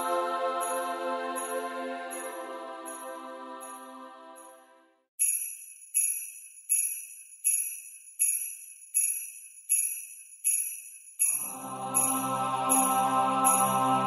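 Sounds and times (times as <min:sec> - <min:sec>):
held music chord: 0:00.0 - 0:04.5, 0:11.4 - 0:14.0
sleigh bells shaken: 0:05.2 - 0:14.0.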